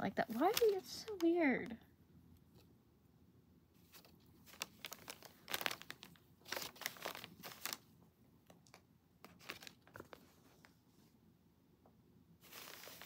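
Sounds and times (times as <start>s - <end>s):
paper bag crinkling: 0.2s - 1.3s, 3.8s - 7.9s, 8.6s - 10.2s, 12.4s - 13.0s.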